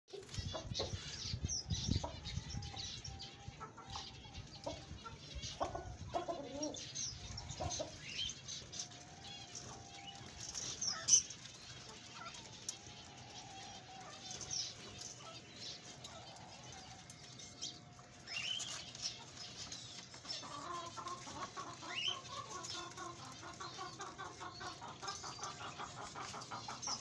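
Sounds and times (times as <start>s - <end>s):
hen clucking: 0.1s - 11.2s, 18.8s - 27.0s
small caged birds chirping: 0.1s - 27.0s.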